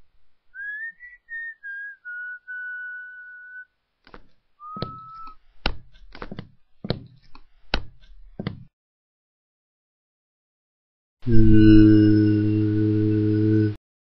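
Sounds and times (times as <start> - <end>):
person whistling: 0.6 - 3.7, 4.6 - 5.4.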